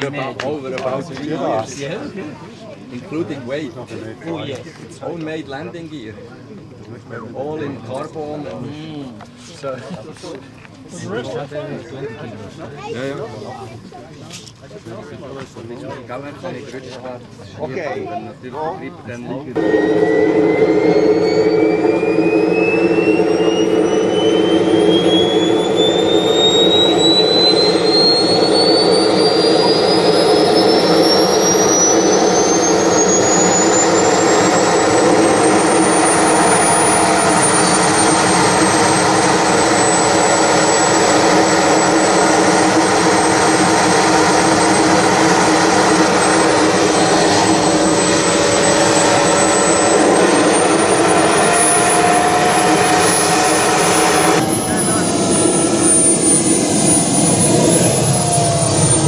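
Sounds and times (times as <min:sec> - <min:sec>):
turbine engine whine: 0:19.4 - 0:59.0
low rumble: 0:19.6 - 0:59.0.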